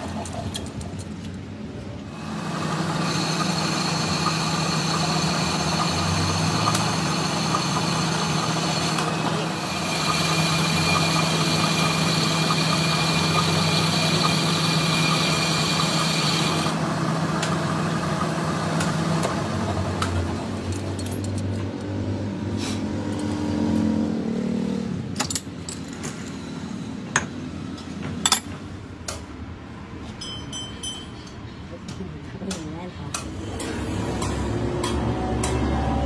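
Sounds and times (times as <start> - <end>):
metal lathe running: 2.1 - 20.8
high cutting whine: 2.2 - 19.6.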